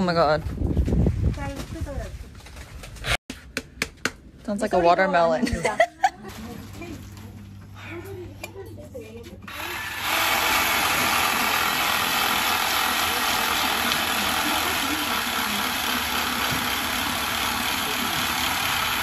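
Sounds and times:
electric saw cutting fish: 0:09.5 - 0:19.0.

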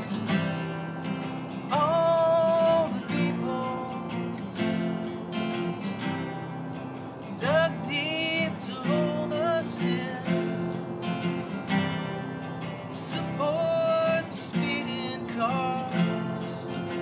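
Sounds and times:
acoustic guitars strummed: 0:00.0 - 0:17.0
man singing: 0:01.7 - 0:05.0, 0:07.4 - 0:11.0, 0:12.8 - 0:17.0.

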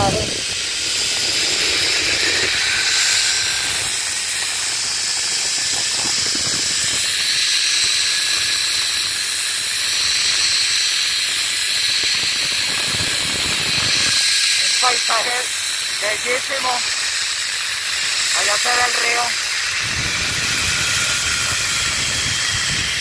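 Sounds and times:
zipline pulleys hissing on cable: 0:00.0 - 0:23.0
rush of air: 0:19.4 - 0:23.0.

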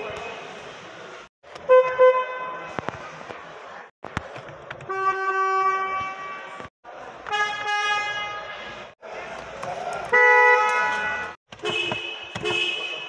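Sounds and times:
car horn honks: 0:01.6 - 0:02.8, 0:04.8 - 0:06.7, 0:07.3 - 0:08.8, 0:10.1 - 0:13.0.

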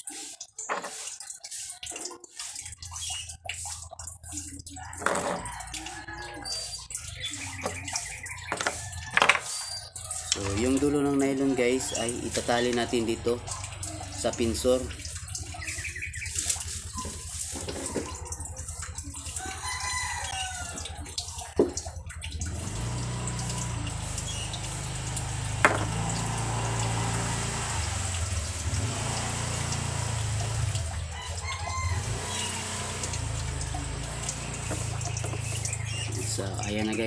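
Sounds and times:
rooster crowing: 0:04.8 - 0:06.8, 0:19.4 - 0:21.1, 0:31.1 - 0:32.7.

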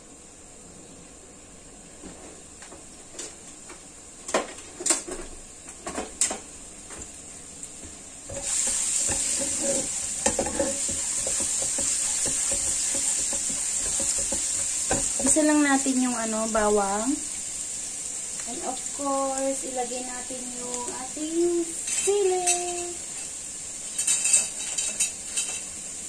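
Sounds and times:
garlic sizzling in oil: 0:05.6 - 0:26.0
oil popping and crackling: 0:08.3 - 0:15.5
spatula scraping wok: 0:08.3 - 0:16.7, 0:21.8 - 0:25.8.

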